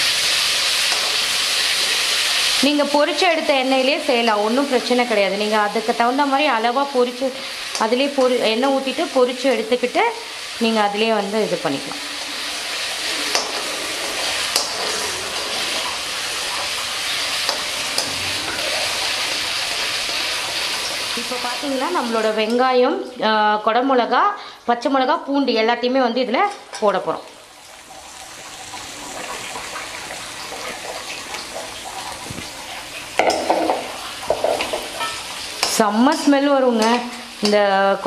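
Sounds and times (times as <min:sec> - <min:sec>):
paste sizzling in hot oil: 0:00.0 - 0:22.7, 0:27.3 - 0:38.0
metal ladle scraping a pan: 0:11.7 - 0:21.1, 0:33.2 - 0:37.3
metal spatula clicking on pan: 0:34.6 - 0:37.6.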